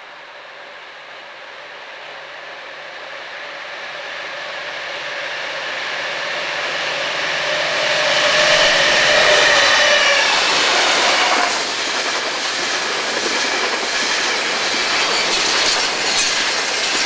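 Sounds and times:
diesel locomotive engine: 0.0 - 17.0
steady whining tone: 4.9 - 11.8.

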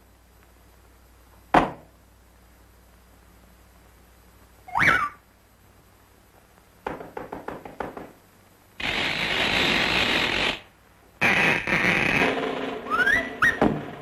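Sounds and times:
harsh noisy rasp: 8.8 - 13.7.

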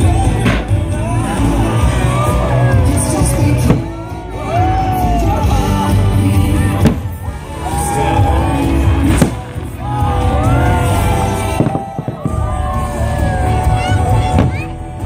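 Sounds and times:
orchestral music with singing: 0.0 - 15.0
sharp fireworks bangs: 3.6 - 4.0, 6.7 - 7.4, 8.8 - 12.8.

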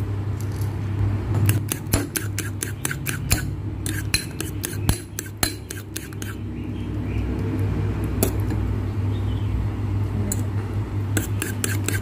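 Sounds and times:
fork beating eggs in bowl: 1.4 - 6.5, 11.1 - 12.0.

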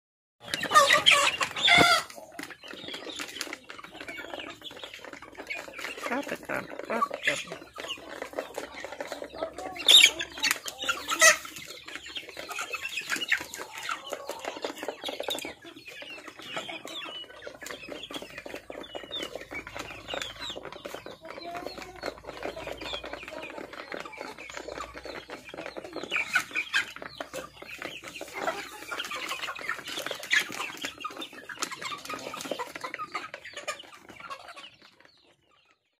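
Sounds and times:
young chickens clucking: 0.4 - 36.0.

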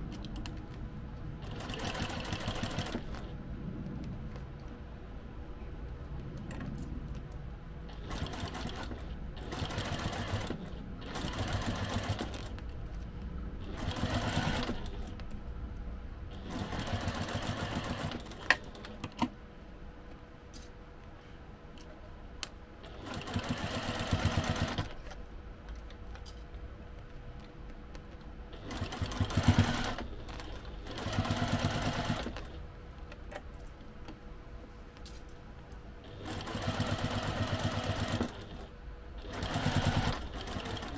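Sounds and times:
sewing machine stitching: 1.4 - 3.3, 7.9 - 12.5, 13.6 - 15.1, 16.3 - 18.9, 22.9 - 25.0, 28.6 - 32.6, 36.1 - 40.9.

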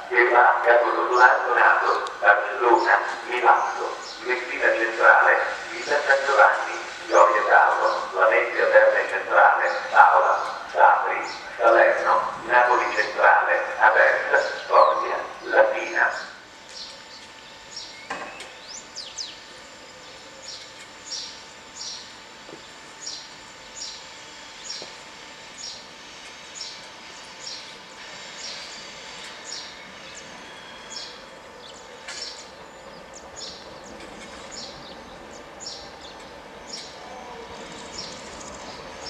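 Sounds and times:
bird chirping: 29.4 - 39.0.

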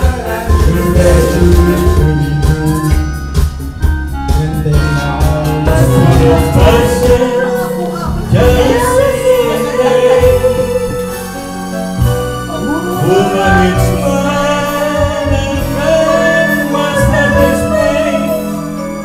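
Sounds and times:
person singing: 0.0 - 11.6, 12.4 - 19.0
musical accompaniment: 0.0 - 19.0.

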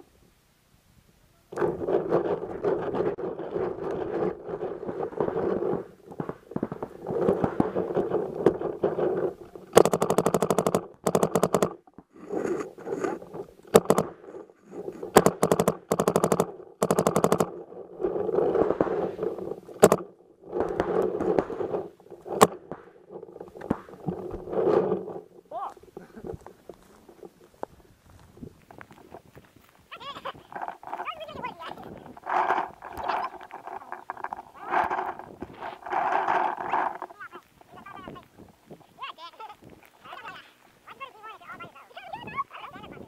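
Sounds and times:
paintball markers firing: 4.8 - 25.2.

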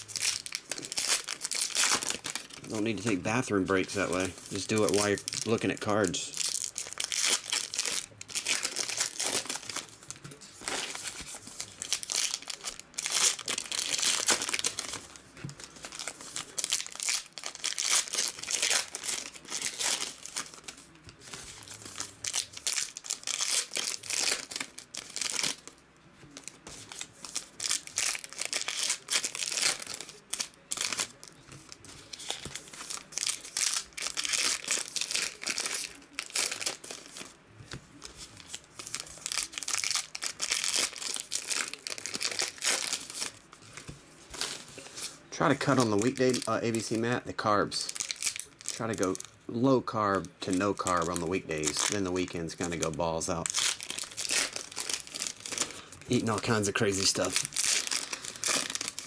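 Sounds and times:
foil wrappers crinkling and tearing: 0.0 - 59.0.

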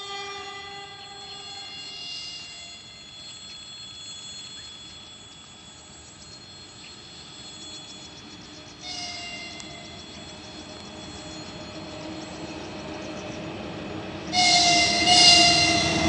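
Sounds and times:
distant locomotive horn: 0.0 - 2.9, 8.8 - 16.0
freight train rumbling: 0.0 - 16.0
steady high-pitched tones: 0.0 - 16.0
fast faint ticking: 1.4 - 13.5.

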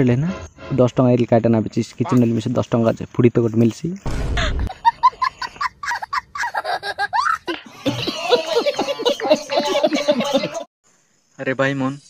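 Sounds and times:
men laughing: 4.5 - 10.7.

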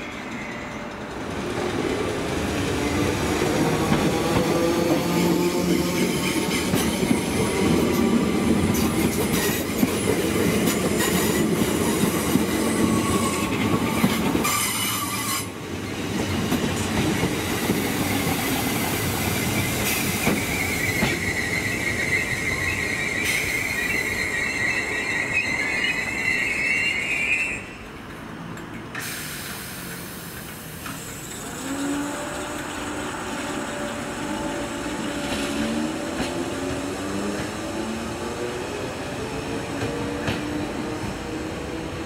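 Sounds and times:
high wheel squeal: 14.4 - 15.6, 19.4 - 27.8.

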